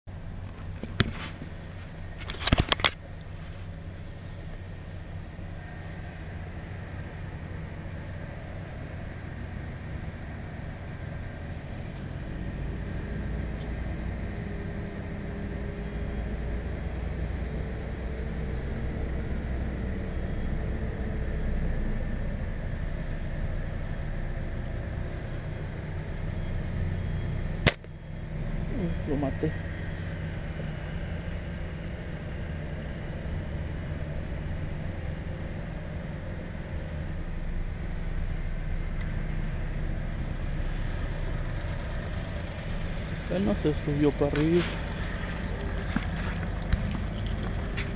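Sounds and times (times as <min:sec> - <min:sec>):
truck engine idling: 0:03.0 - 0:47.9
slingshot snap: 0:27.6 - 0:27.9.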